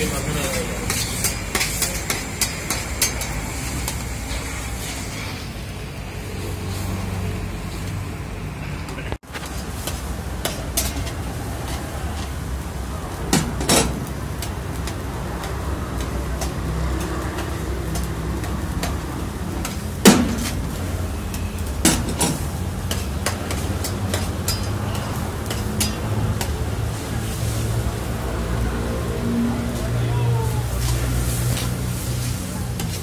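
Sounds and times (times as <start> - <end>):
metal spatula scraping a pan: 0.0 - 5.6, 15.4 - 27.8, 30.8 - 33.0.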